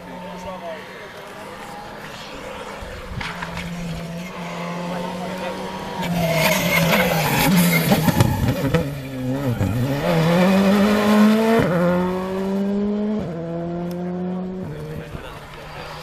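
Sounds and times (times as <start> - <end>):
rally car engine revving: 0.0 - 16.0
gear upshifts: 0.8 - 12.7.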